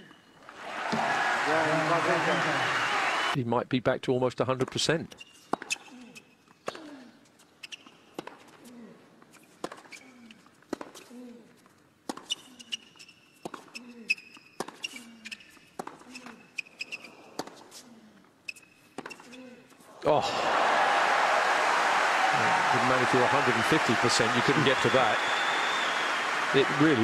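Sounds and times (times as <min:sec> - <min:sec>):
shoes squeaking on court: 0:05.1 - 0:19.8.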